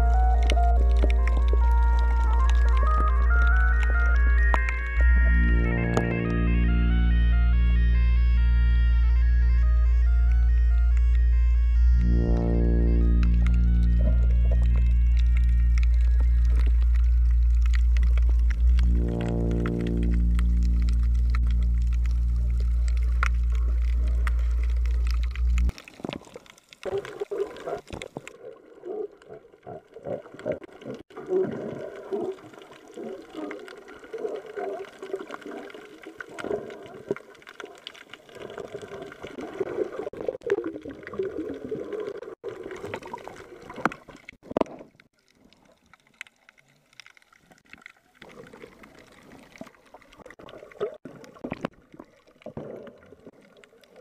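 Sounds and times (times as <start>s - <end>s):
underwater gurgling and bubbles: 0.0s - 54.0s
loud low hum: 5.0s - 25.7s.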